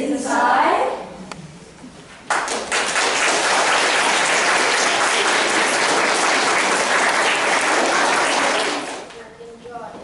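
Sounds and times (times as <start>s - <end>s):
children applauding: 2.3s - 9.1s.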